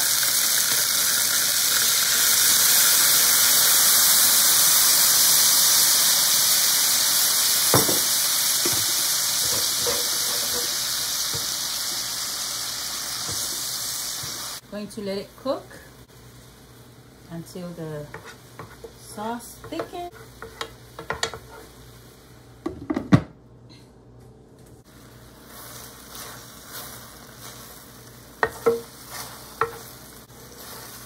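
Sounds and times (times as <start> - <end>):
sauce sizzling in a skillet: 0.0 - 22.4, 24.8 - 31.0.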